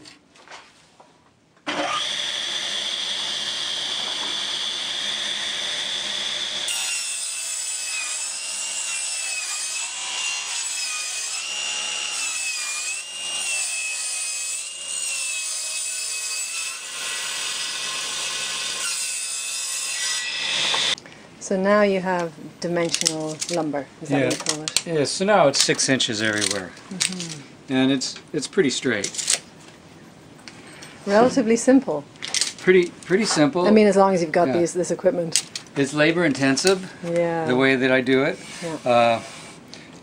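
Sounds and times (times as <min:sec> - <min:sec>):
table saw ripping a board: 0:01.6 - 0:21.0
table saw blade whining: 0:01.7 - 0:21.0.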